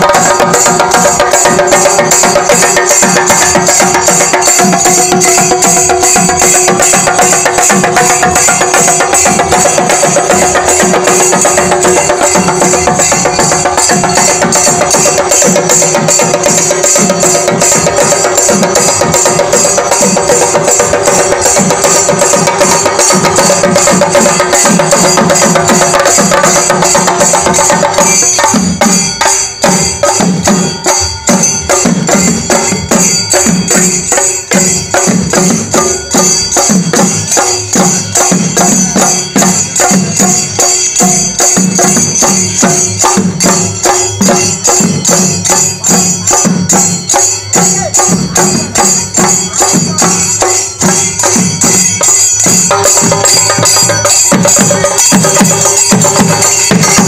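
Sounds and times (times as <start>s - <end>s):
drums beaten with sticks: 0.0s - 57.0s
hand cymbals clashing: 0.0s - 57.0s.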